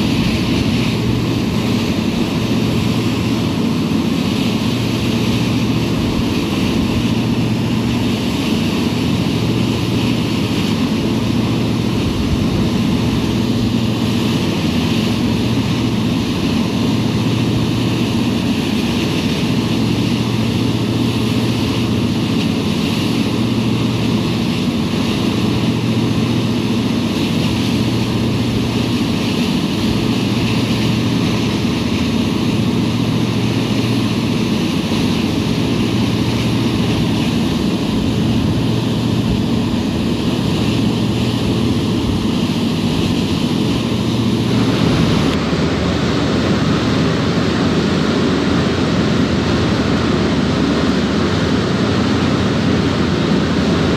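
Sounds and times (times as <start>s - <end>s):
ferry engine drone: 0.0s - 53.9s
rushing wake water: 0.0s - 53.9s.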